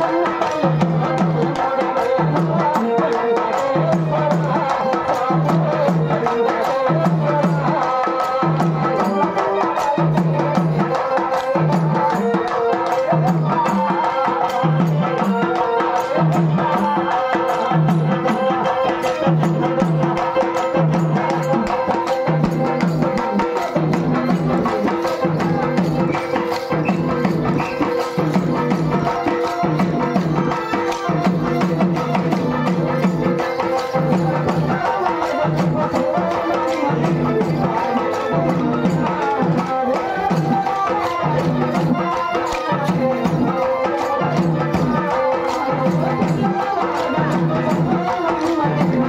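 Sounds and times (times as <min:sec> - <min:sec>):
fast clicking percussion: 0:00.0 - 0:49.0
man singing: 0:00.0 - 0:49.0.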